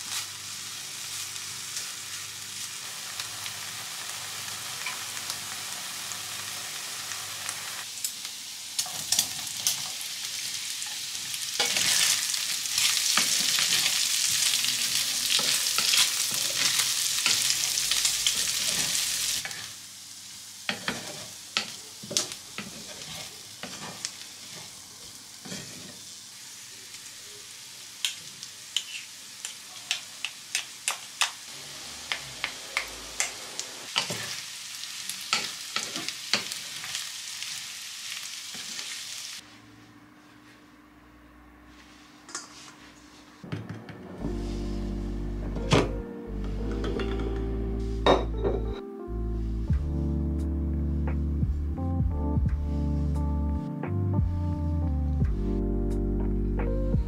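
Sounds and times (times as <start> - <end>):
bacon sizzling in a frying pan: 0.0 - 39.4
spatula scraping a pan: 20.7 - 21.8, 22.6 - 24.8, 25.4 - 26.0.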